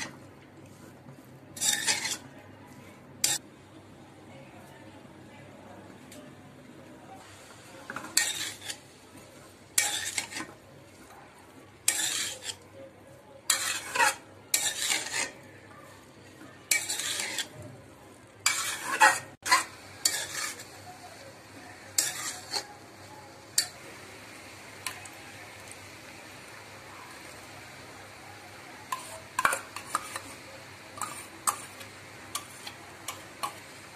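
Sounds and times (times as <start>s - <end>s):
spatula scraping metal pan: 1.6s - 2.3s, 3.2s - 3.4s, 7.9s - 10.6s, 11.8s - 12.6s, 13.5s - 15.5s, 16.7s - 17.6s, 18.4s - 20.7s, 21.9s - 22.8s, 28.9s - 30.4s, 31.0s - 33.6s.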